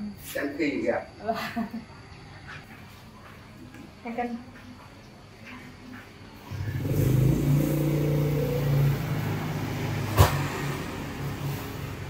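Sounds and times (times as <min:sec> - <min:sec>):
vehicle engine running loud: 0:06.5 - 0:12.0.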